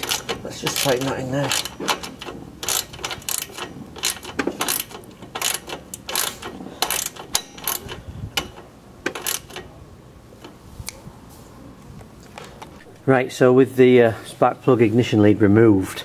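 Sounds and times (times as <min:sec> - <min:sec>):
small metallic clicks and rattles: 0:00.0 - 0:09.7.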